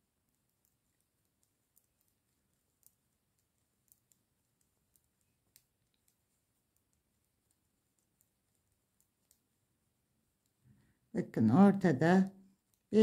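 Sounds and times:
knitting needles clicking: 0:00.0 - 0:09.6, 0:12.5 - 0:13.0.

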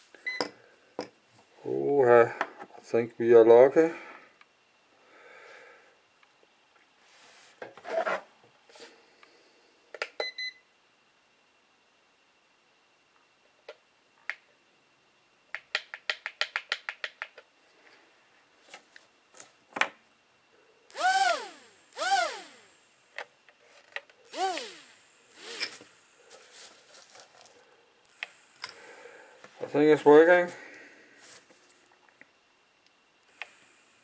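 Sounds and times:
small drone motors whining: 0:20.9 - 0:23.0, 0:24.2 - 0:26.4, 0:28.0 - 0:29.0, 0:33.2 - 0:34.0.

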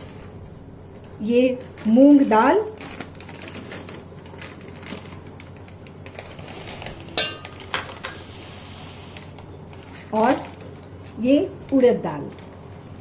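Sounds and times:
patter of grains: 0:01.6 - 0:11.2
ringing clink against steel pot: 0:07.2 - 0:07.6.

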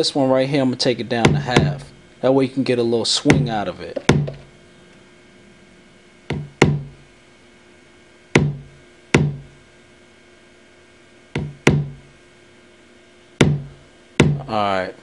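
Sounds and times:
kick drum loop: 0:01.1 - 0:02.0, 0:03.3 - 0:04.5, 0:06.3 - 0:07.0, 0:08.3 - 0:09.6, 0:11.4 - 0:12.1, 0:13.4 - 0:14.6.

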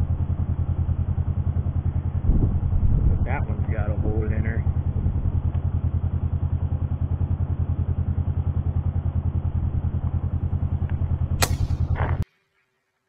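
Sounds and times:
vehicle engine idling: 0:00.0 - 0:12.2
sharp clack: 0:11.4 - 0:12.2.

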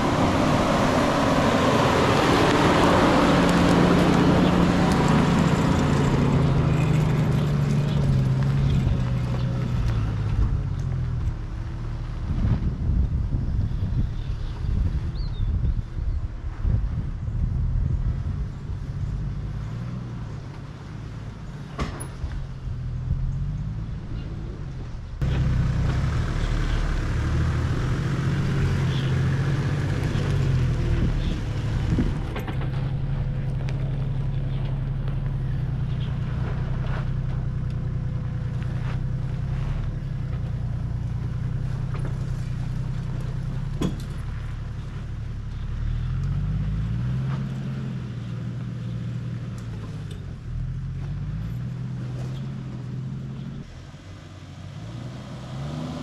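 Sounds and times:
vehicle engine running: 0:00.0 - 0:55.0
knocks and rattles: 0:30.0 - 0:35.4, 0:41.8 - 0:44.5.

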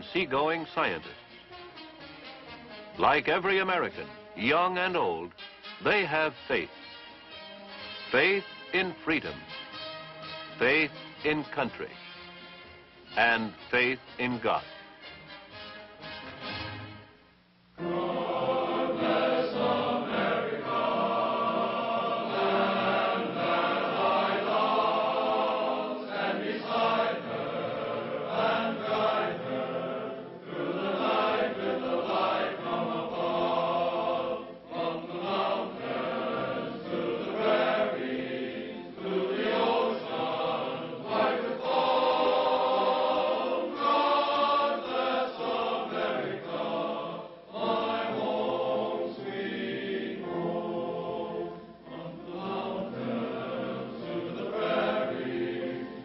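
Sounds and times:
choir singing sustained chords: 0:17.7 - 0:56.0.

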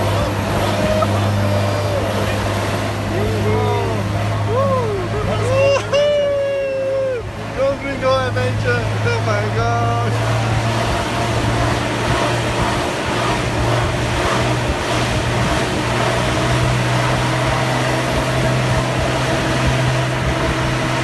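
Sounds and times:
car engine hum: 0:00.0 - 0:21.0.

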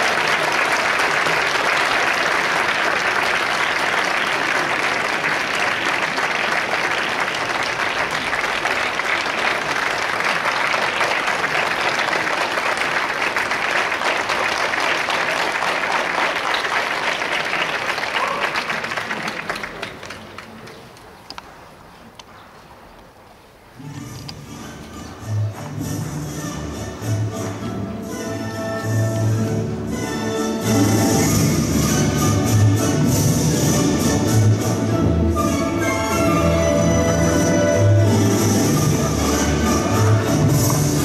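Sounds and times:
large crowd applauding: 0:00.0 - 0:21.2.

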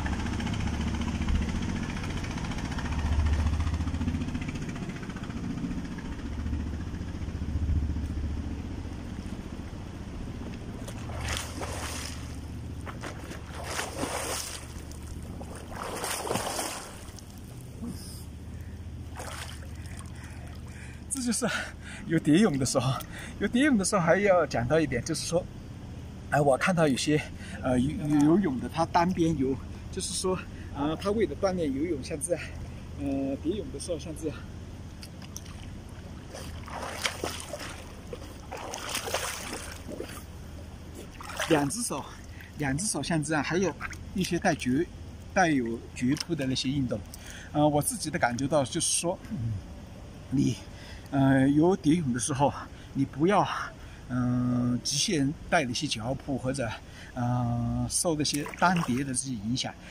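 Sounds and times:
low steady rumble: 0:00.0 - 0:59.9
water splashing from swimming strokes: 0:10.7 - 0:17.8, 0:19.0 - 0:21.0, 0:35.0 - 0:42.6, 0:43.7 - 0:44.4, 0:58.2 - 0:59.2.

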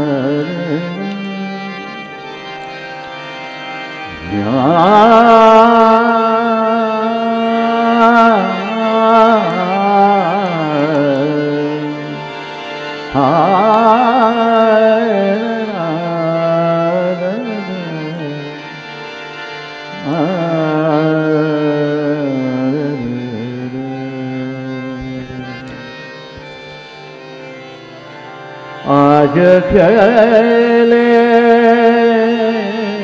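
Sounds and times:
man singing: 0:00.0 - 0:02.3, 0:04.1 - 0:12.4, 0:13.0 - 0:18.8, 0:19.9 - 0:26.0, 0:28.8 - 0:33.0
harmonium: 0:00.0 - 0:33.0.

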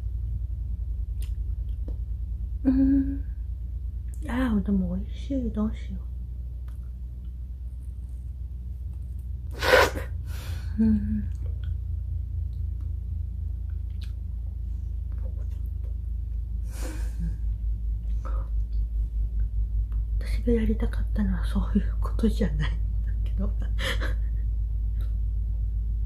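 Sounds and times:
steady low hum: 0:00.0 - 0:26.0
closed-mouth chewing: 0:13.7 - 0:14.3.

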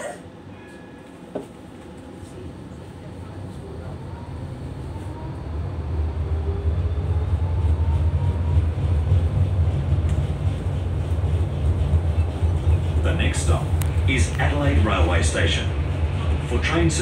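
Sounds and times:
tram rumbling on track: 0:00.0 - 0:17.0.

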